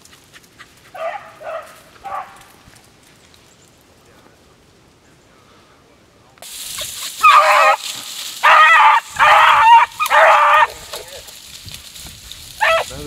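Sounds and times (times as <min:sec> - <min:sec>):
hounds baying: 0:00.4 - 0:02.5, 0:06.8 - 0:11.3, 0:12.6 - 0:13.0
steady hiss: 0:03.8 - 0:08.5.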